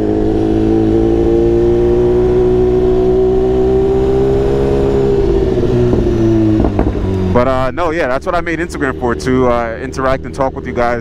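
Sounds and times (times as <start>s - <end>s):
motorcycle engine running: 0.0s - 11.0s
low rumble: 4.2s - 11.0s.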